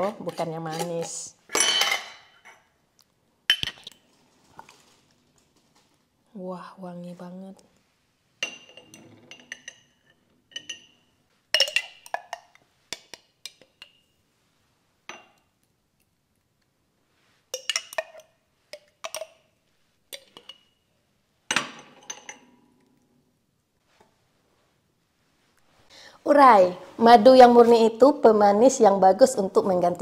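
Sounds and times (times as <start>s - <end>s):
metal spoon clinking on glass: 8.4s - 14.1s, 17.6s - 19.4s.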